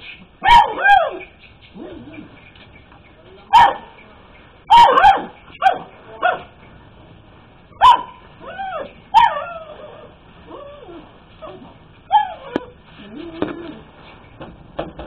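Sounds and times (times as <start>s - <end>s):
puppy barking in high yaps: 0.4s - 2.0s, 3.5s - 3.9s, 4.6s - 6.5s, 7.7s - 10.0s, 12.1s - 12.7s
puppy yelping: 7.8s - 13.8s.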